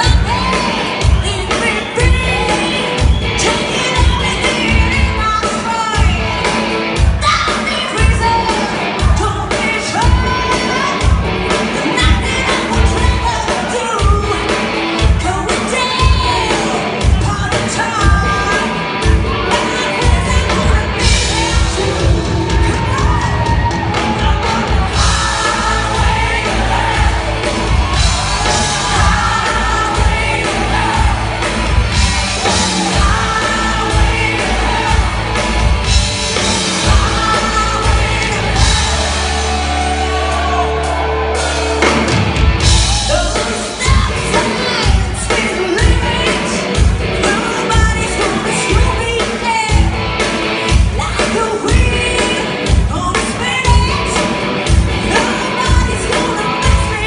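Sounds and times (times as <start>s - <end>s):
live rock band playing: 0.0s - 57.0s
steady drumbeat: 0.0s - 57.0s
people singing: 19.7s - 35.6s, 36.4s - 41.3s.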